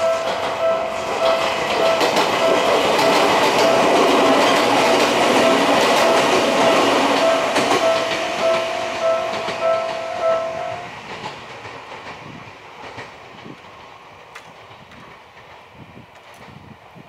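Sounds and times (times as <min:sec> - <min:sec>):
level crossing alarm dinging: 0:00.0 - 0:10.9
passing train rumble: 0:00.0 - 0:17.0.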